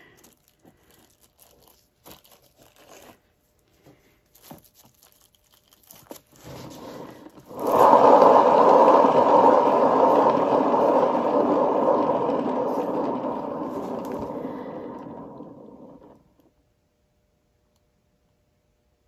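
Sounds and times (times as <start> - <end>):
spinning turntable whirring: 6.5 - 16.5.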